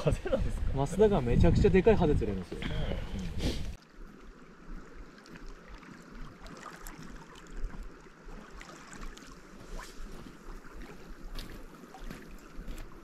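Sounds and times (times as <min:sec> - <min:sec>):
wind rumbling on microphone: 0:00.0 - 0:13.0
waves lapping on pebbles: 0:03.7 - 0:13.0.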